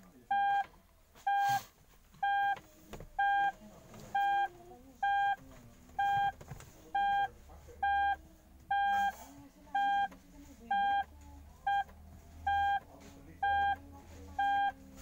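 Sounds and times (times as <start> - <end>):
heart monitor beeping: 0.3 - 0.6, 1.2 - 1.6, 2.2 - 2.6, 3.2 - 3.6, 4.2 - 5.4, 6.0 - 6.4, 7.0 - 9.2, 9.8 - 10.1, 10.7 - 11.1, 11.7 - 12.8, 13.4 - 13.8, 14.4 - 14.8.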